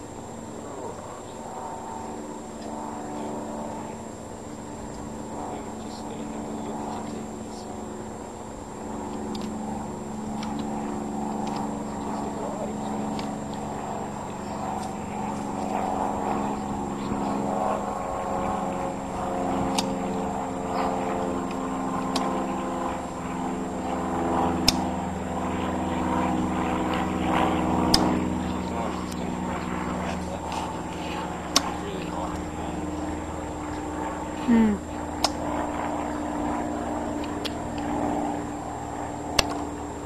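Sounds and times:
motor droning: 0:00.0 - 0:40.0
sharp clicks: 0:19.7 - 0:20.0, 0:39.3 - 0:39.6.

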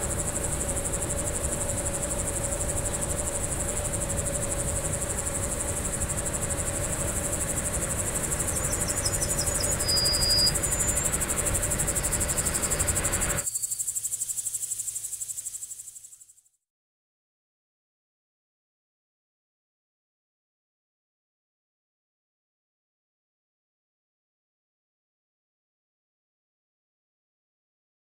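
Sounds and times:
steady hum: 0:00.0 - 0:14.2
insects trilling: 0:00.0 - 0:16.6
short high chirp: 0:08.8 - 0:11.0.

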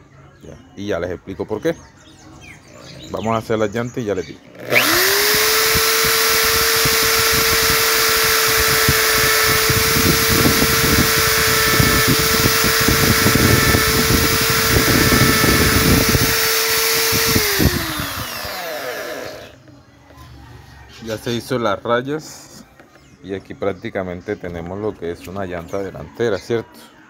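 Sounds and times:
electric drill running: 0:04.5 - 0:19.6.

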